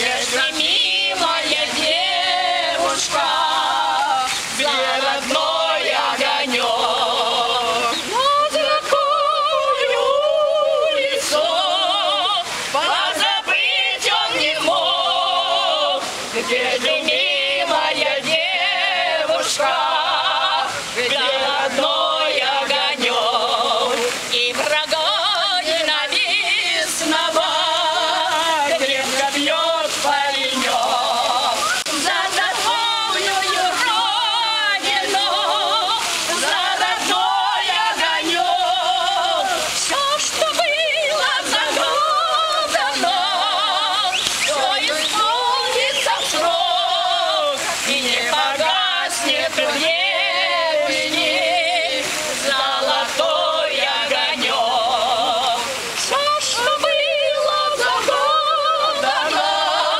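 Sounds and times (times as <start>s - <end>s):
group singing in unison: 0.0s - 59.9s.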